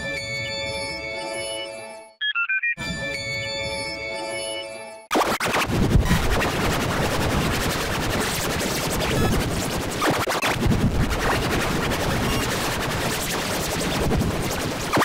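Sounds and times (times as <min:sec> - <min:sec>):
harsh noisy crackle: 0:05.1 - 0:15.0.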